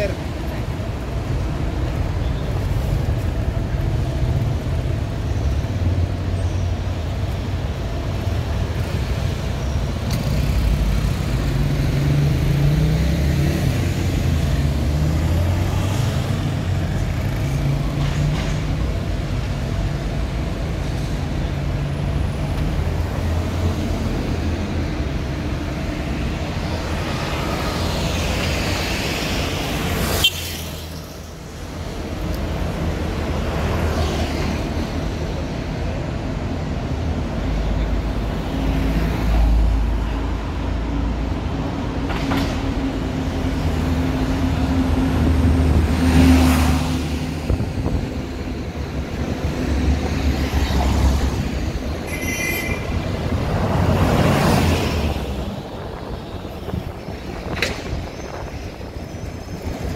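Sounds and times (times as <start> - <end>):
car and motorbike engines passing: 8.6 - 19.0, 42.6 - 52.0.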